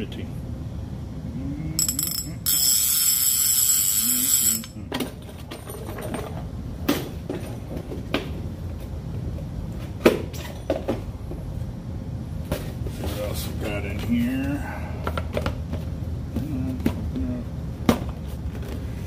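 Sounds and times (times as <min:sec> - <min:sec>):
fishing reel whirring: 0:01.8 - 0:04.8.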